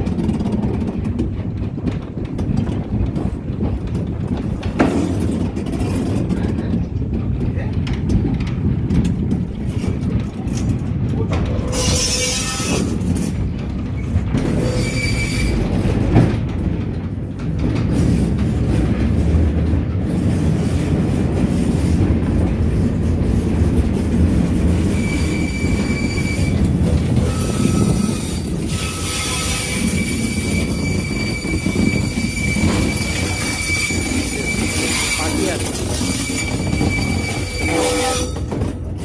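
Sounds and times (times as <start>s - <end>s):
wheels rumbling on rail: 0.0s - 39.0s
high wheel squeal: 11.7s - 12.9s, 14.5s - 15.8s, 24.8s - 38.5s.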